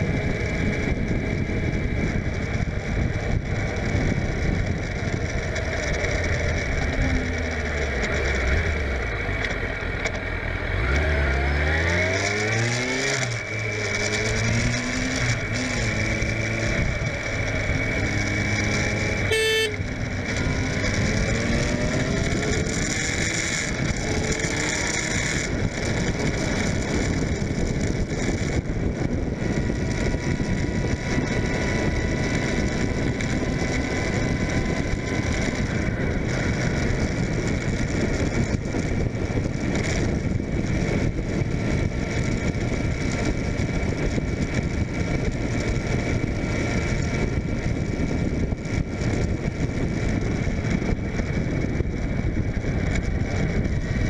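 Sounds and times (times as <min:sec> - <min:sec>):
wind buffeting on microphone: 0:00.0 - 0:09.0, 0:11.5 - 0:54.0
motorcycle engine running: 0:00.0 - 0:54.0.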